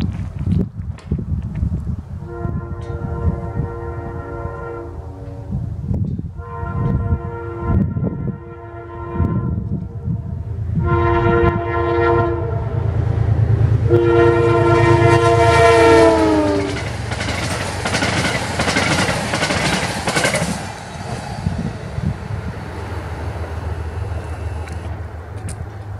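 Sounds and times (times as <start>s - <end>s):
diesel locomotive rumble: 0.0s - 25.9s
train horn blasts: 2.2s - 5.7s, 6.4s - 16.9s
train wheels clattering on rails: 16.5s - 22.2s.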